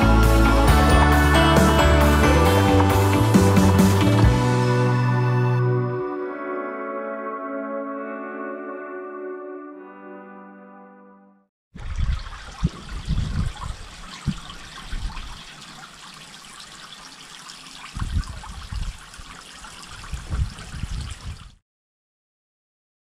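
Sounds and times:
fountain splashing into pond: 11.8 - 21.6.

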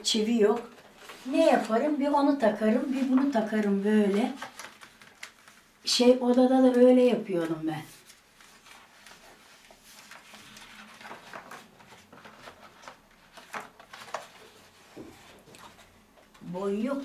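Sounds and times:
paper print rustling: 0.0 - 17.0.

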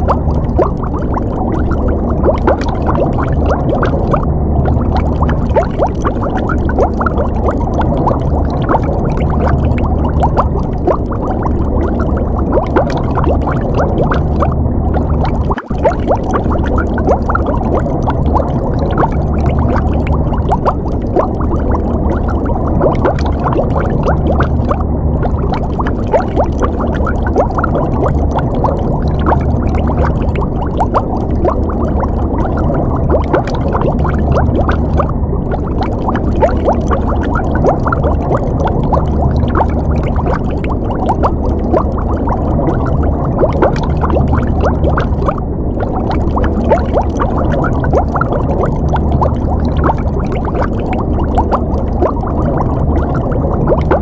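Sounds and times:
steady low rumble: 0.0 - 54.0
underwater bubbling and gurgling: 0.0 - 54.0.

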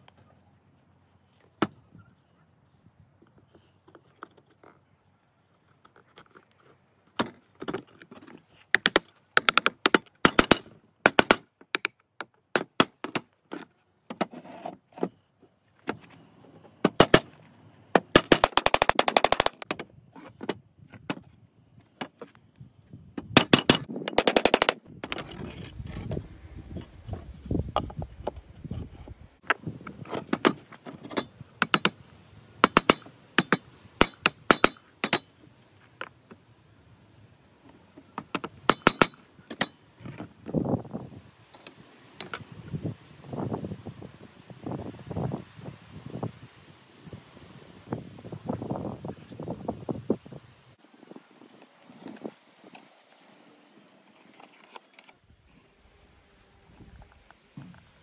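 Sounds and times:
hammer tapping nails into wood: 32.6 - 35.3.

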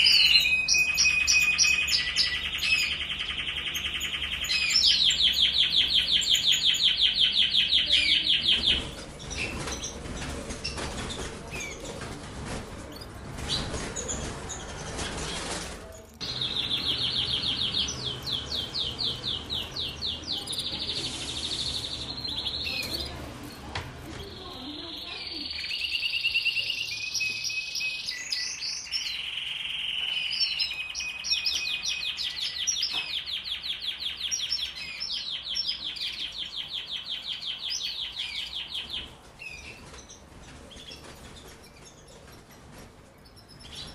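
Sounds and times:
canary singing trills: 0.0 - 12.1, 12.8 - 43.9
rustling noise: 8.5 - 16.6, 17.9 - 25.1, 38.8 - 43.9.

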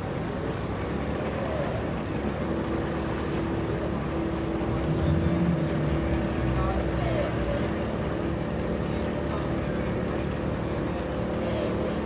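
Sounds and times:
boat engine idling: 0.0 - 12.0
steady hum: 2.4 - 12.0.

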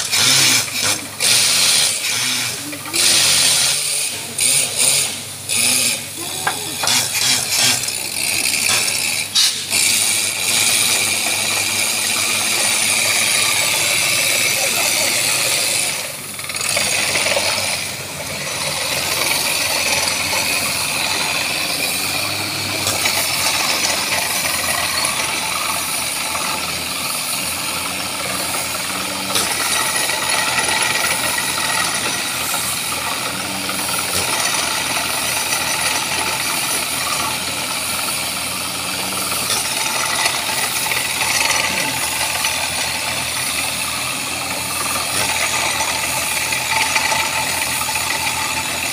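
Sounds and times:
drilling rig running: 0.0 - 48.9
water flushing out: 6.2 - 48.9.

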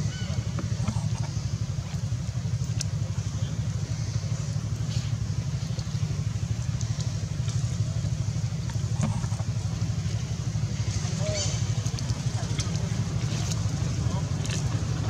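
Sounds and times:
engine idling: 0.0 - 15.0
faint clicks: 0.5 - 3.3, 4.9 - 10.2.

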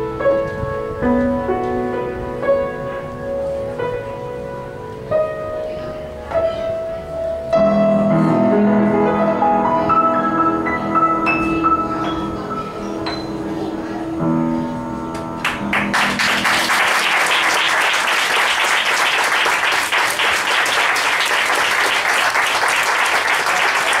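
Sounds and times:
piano chord ringing: 0.0 - 16.8
audience applause: 15.4 - 24.0.

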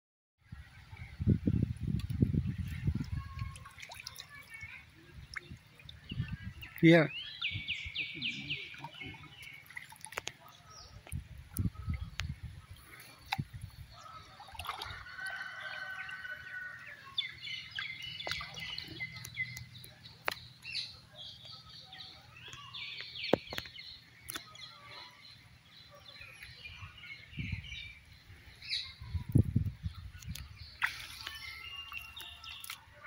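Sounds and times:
birds chirping: 0.6 - 33.0
water splashing and dripping: 1.8 - 20.7, 29.3 - 33.0.

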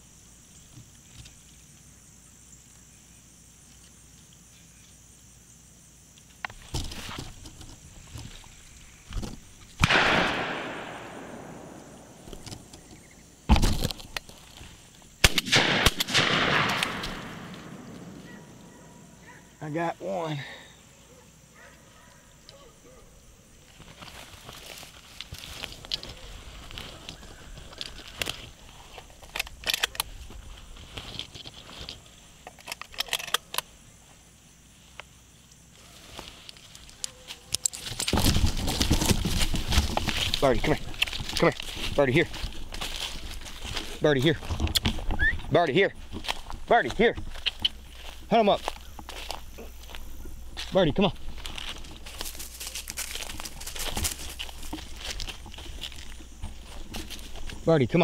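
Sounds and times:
rustling in dry cornstalks: 6.5 - 19.4, 23.6 - 29.3, 30.0 - 32.5, 33.7 - 58.0
shotgun shots: 9.8 - 12.2, 15.2 - 18.2
shotgun shots with rolling echo: 9.8 - 12.2, 15.2 - 18.2.

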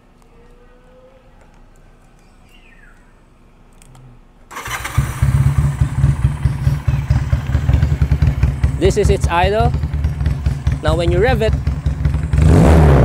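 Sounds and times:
motorcycle engine starting and idling: 4.5 - 13.0.

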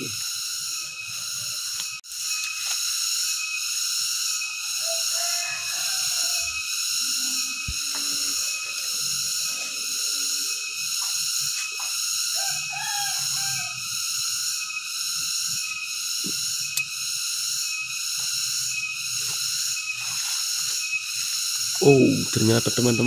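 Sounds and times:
pulsing insect drone: 0.0 - 23.0
leaves and twigs rustling: 17.7 - 21.9.

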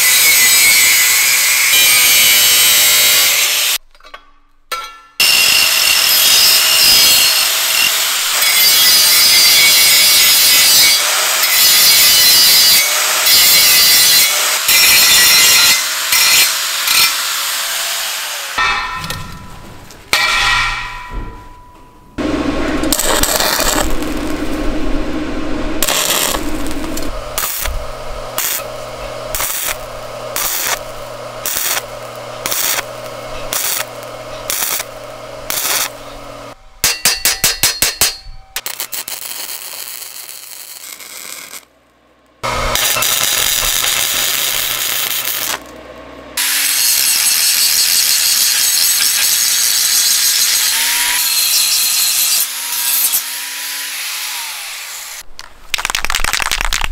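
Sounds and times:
welding crackle: 5.2 - 17.6, 22.2 - 36.6, 37.5 - 45.8, 46.4 - 52.4, 55.2 - 56.9
hammer blows on steel: 18.6 - 23.0
angle grinder running: 22.2 - 36.6, 42.4 - 45.8, 46.4 - 55.2.

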